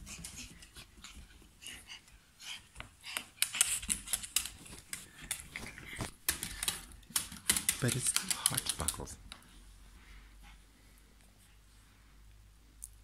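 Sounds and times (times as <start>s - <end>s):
dog claws clicking on wooden floor: 2.8s - 9.2s.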